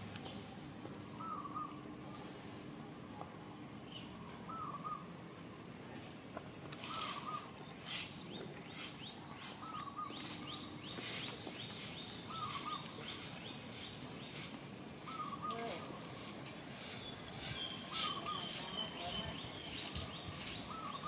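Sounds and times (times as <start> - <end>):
bird warbled call: 1.2 - 1.8, 4.5 - 5.1, 6.6 - 8.0, 11.8 - 13.3, 15.0 - 15.9, 17.6 - 21.0.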